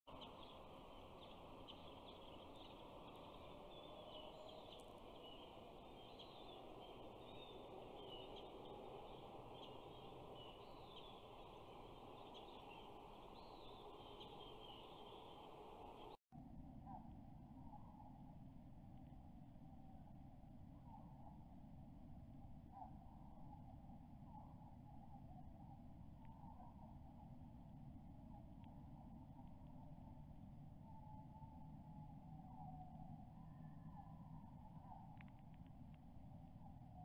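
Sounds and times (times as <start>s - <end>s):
small birds chirping: 0.1s - 16.2s.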